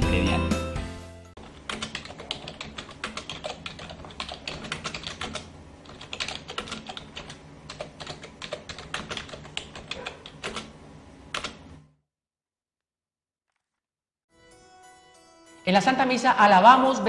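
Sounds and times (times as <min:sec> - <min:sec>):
rapid keyboard clicks: 0:01.4 - 0:11.6.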